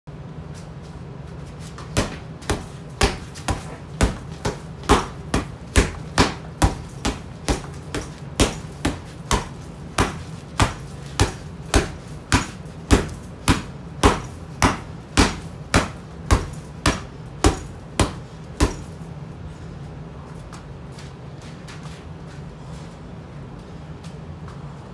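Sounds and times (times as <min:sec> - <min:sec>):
gloved punches on heavy bag: 0:01.9 - 0:19.0.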